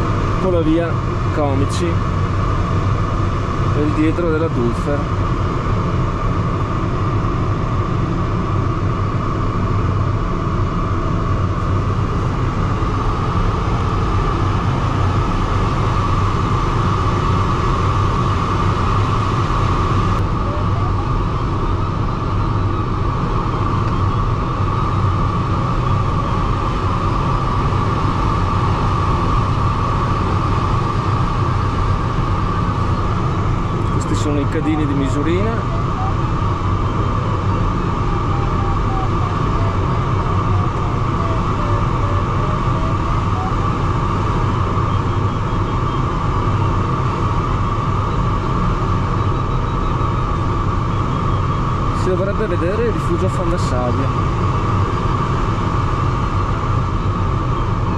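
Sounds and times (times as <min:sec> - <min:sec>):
airflow rushing over glider canopy: 0:00.0 - 0:57.9
constant high tone: 0:32.4 - 0:46.9.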